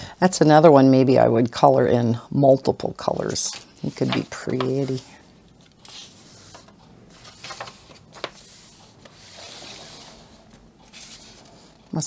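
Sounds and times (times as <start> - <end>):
paper pages rustling: 3.1 - 11.8.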